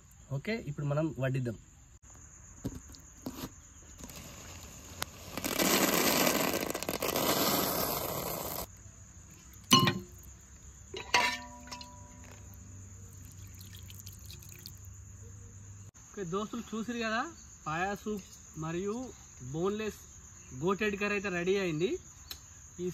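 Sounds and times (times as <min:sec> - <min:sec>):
ladle clinking against steel: 0:09.6 - 0:10.2, 0:10.9 - 0:12.4
soup poured into steel bowl: 0:13.1 - 0:14.9.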